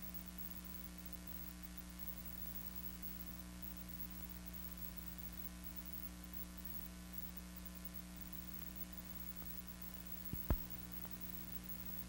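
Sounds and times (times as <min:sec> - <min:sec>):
film soundtrack hum and hiss: 0:00.0 - 0:12.0
film pops: 0:10.3 - 0:11.2.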